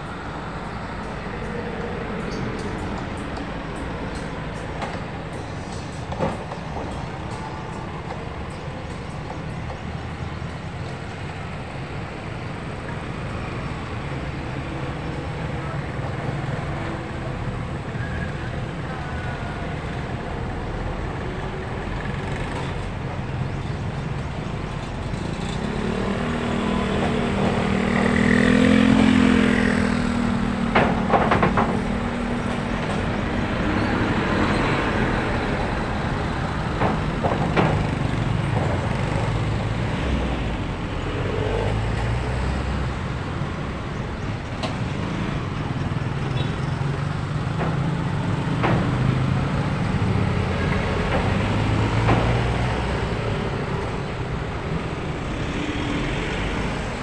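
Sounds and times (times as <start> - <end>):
motorcycle tricycles passing: 0.0 - 57.0
roadside traffic: 0.0 - 57.0
truck diesel engine passing: 24.2 - 57.0.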